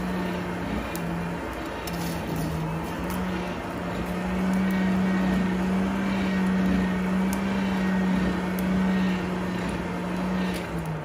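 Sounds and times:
blower hum: 0:00.0 - 0:11.0
flames rushing: 0:00.0 - 0:11.0.

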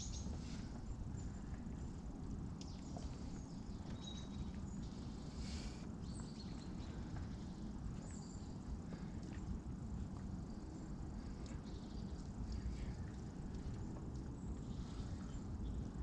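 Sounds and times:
small birds chirping: 0:00.0 - 0:09.4, 0:10.4 - 0:16.0
steady low rumble: 0:00.0 - 0:16.0.

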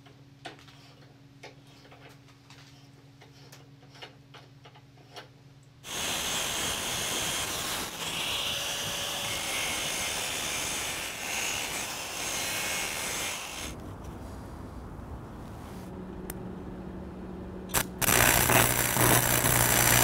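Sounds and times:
arc welding crackling hiss: 0:05.8 - 0:13.7, 0:17.7 - 0:20.0.

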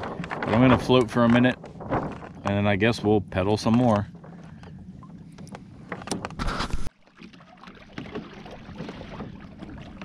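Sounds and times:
water splashing against kayak hull: 0:00.0 - 0:10.0.

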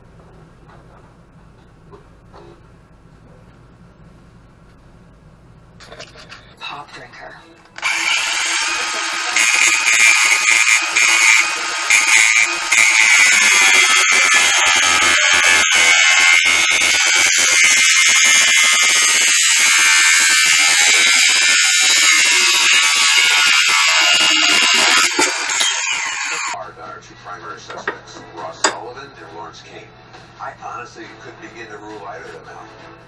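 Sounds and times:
angle grinder grinding steel: 0:07.8 - 0:26.6.

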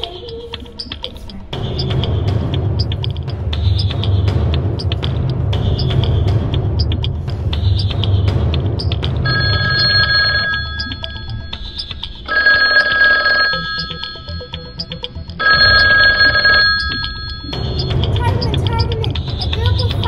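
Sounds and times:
phone ringing: 0:09.2 - 0:18.9.

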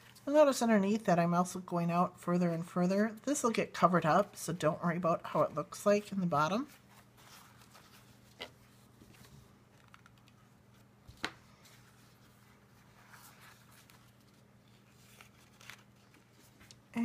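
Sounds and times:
low steady hum: 0:00.0 - 0:17.0
paper crinkling: 0:06.6 - 0:16.9.

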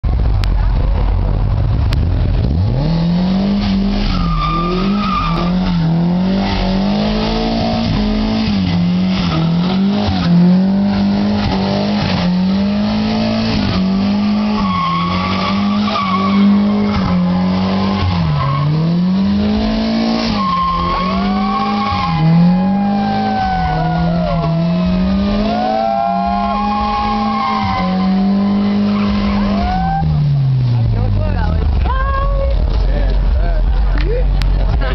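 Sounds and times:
car engine at high revs: 0:00.0 - 0:34.9
tyres squealing: 0:04.0 - 0:06.8, 0:13.6 - 0:19.1, 0:20.0 - 0:30.4.

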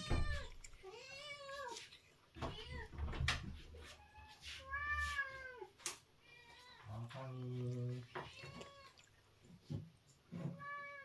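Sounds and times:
cat meowing: 0:00.0 - 0:01.8, 0:03.9 - 0:06.9, 0:08.1 - 0:09.1, 0:10.4 - 0:11.0.

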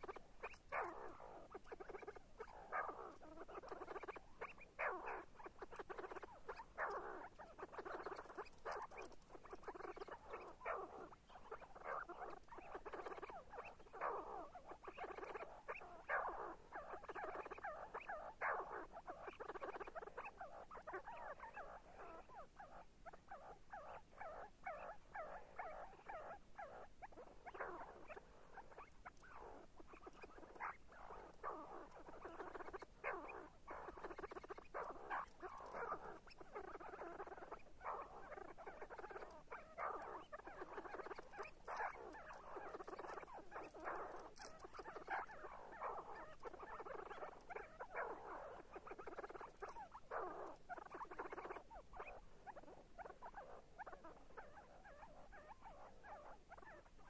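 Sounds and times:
partridge calling: 0:24.3 - 0:51.9.

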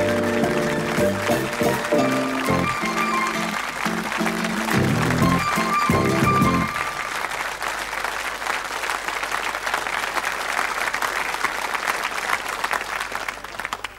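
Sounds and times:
audience applauding: 0:00.0 - 0:13.9
theme music note: 0:01.1 - 0:07.1.

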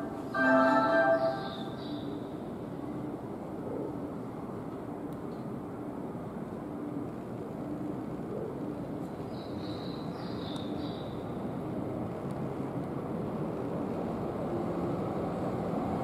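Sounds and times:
faint high tones: 0:00.0 - 0:02.2
railway station noise: 0:00.0 - 0:16.0.

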